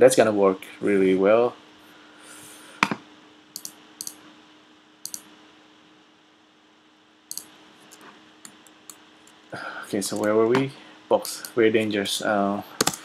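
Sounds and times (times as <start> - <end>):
faint steady hum: 0.0 - 13.0
computer mouse clicking: 3.6 - 4.2, 5.0 - 5.3, 7.3 - 9.4, 12.8 - 13.0.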